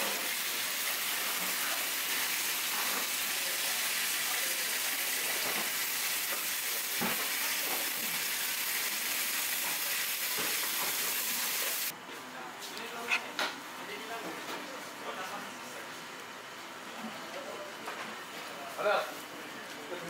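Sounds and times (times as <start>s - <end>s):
food sizzling in a pan: 0.0s - 11.9s.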